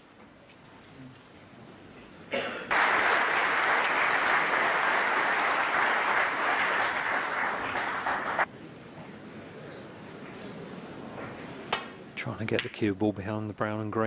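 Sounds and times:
audience applauding: 0:02.7 - 0:08.5.

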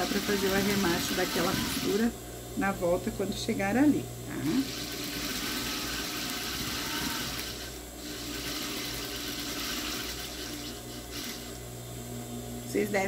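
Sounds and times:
sewing machine stitching: 0:00.0 - 0:02.0, 0:04.6 - 0:11.6.

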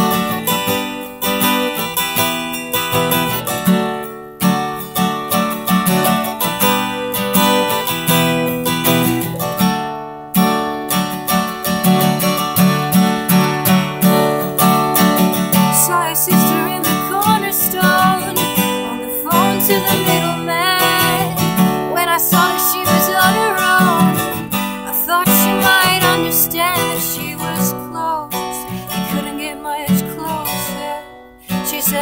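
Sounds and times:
acoustic guitar strumming: 0:00.0 - 0:32.0
woman singing: 0:15.5 - 0:32.0.

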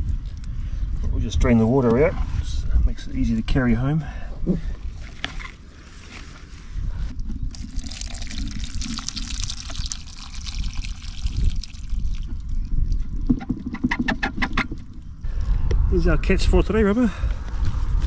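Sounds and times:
water pouring and trickling: 0:07.2 - 0:15.1.

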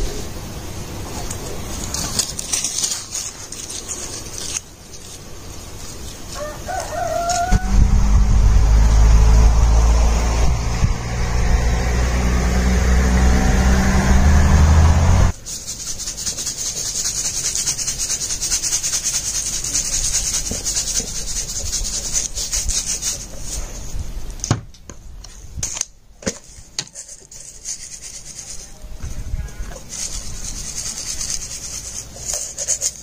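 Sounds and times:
seasoning shaker rattling: 0:01.3 - 0:07.6, 0:15.3 - 0:23.8, 0:25.6 - 0:28.9, 0:29.6 - 0:33.0
loud low rumble: 0:07.4 - 0:15.3.

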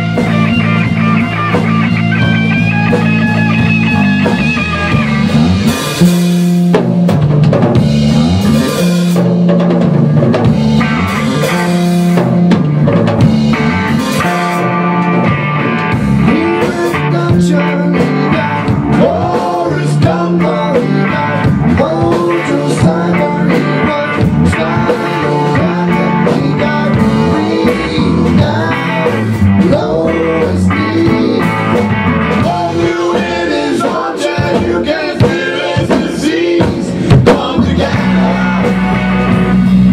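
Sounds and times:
drums: 0:00.0 - 0:39.9
electric bass: 0:00.0 - 0:39.9
electric guitar: 0:00.0 - 0:39.9
men singing: 0:16.2 - 0:39.7.

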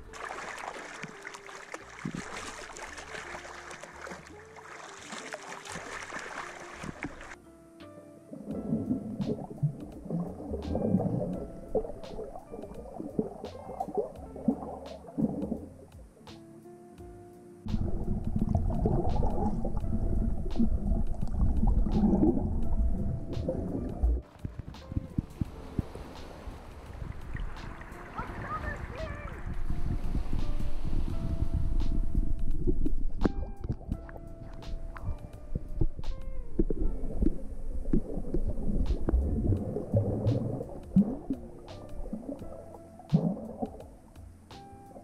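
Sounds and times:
sea water lapping and splashing: 0:00.0 - 0:07.4, 0:17.7 - 0:44.2
bubbling underwater: 0:08.4 - 0:15.7, 0:17.7 - 0:24.2, 0:32.0 - 0:44.0.

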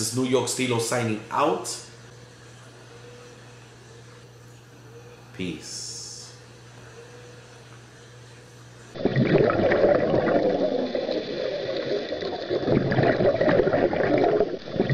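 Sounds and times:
underwater rushing bubbling water: 0:09.0 - 0:14.9.

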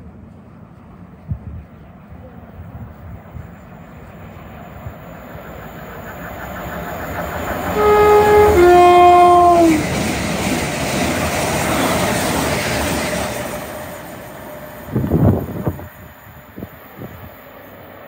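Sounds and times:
rush of passing train: 0:00.0 - 0:18.0
train two-tone horn: 0:07.7 - 0:10.0.

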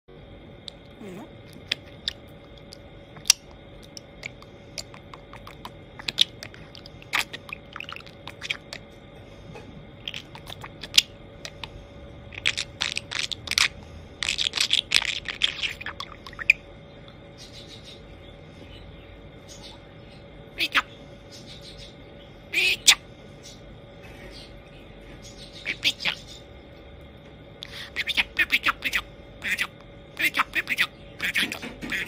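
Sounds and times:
budgerigar clicks and pops: 0:01.5 - 0:08.8, 0:12.4 - 0:16.6.

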